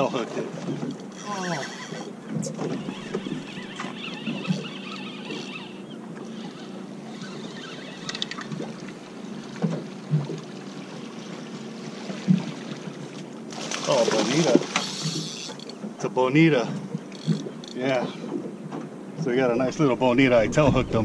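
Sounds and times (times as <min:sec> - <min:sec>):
water and boat noise: 0:00.0 - 0:21.0
fishing reel cranking: 0:01.0 - 0:08.6, 0:14.7 - 0:15.8, 0:17.1 - 0:18.3.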